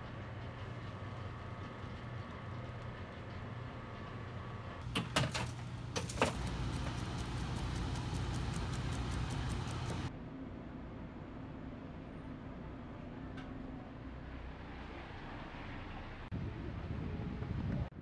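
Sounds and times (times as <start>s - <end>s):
low machine hum: 0.0s - 17.6s
sharp clicks and knocks: 4.8s - 10.1s.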